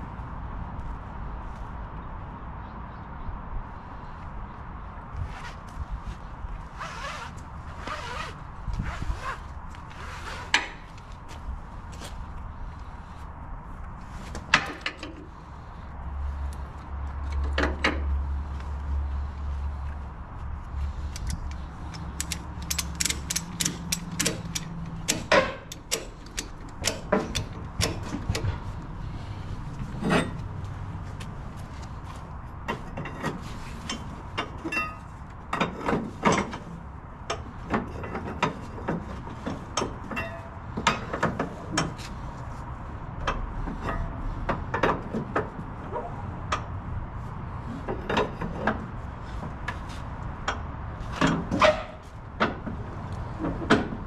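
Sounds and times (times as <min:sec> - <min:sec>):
ratchet pawl clicking: 0:21.1 - 0:28.1.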